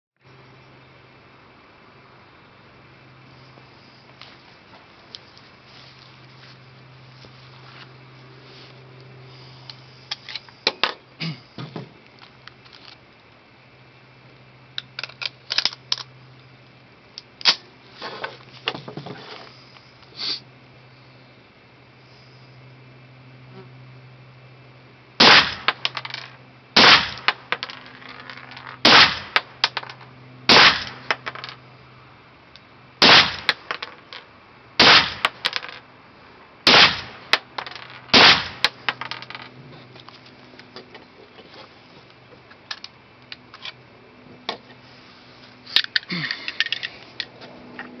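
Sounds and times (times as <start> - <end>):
rifle handling clicks and rattle: 12.2 - 13.0, 14.8 - 16.2, 33.4 - 34.2, 38.6 - 41.7, 42.5 - 43.8, 45.7 - 48.0
rifle shots: 25.2 - 25.9, 26.8 - 27.5, 28.8 - 29.5, 30.5 - 31.1, 33.0 - 33.8, 34.8 - 35.5, 36.6 - 37.4, 38.1 - 38.7.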